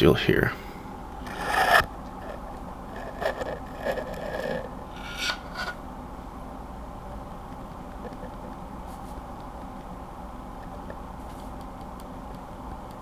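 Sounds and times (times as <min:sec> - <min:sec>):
keyboard switch rubbing and scraping: 0:01.3 - 0:02.4.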